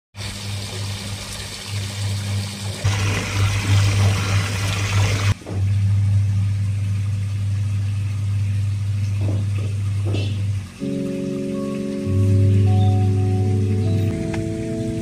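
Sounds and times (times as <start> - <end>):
water gushing into pond: 0.2 - 5.4
steady low hum: 4.9 - 15.0.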